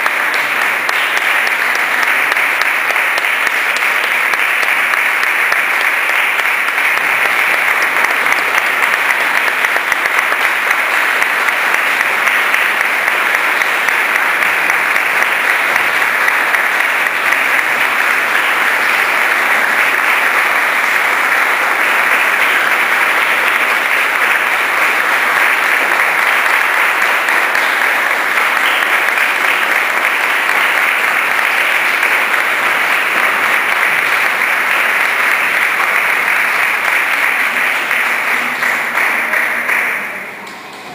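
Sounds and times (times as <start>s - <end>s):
audience applauding: 0.0s - 40.9s.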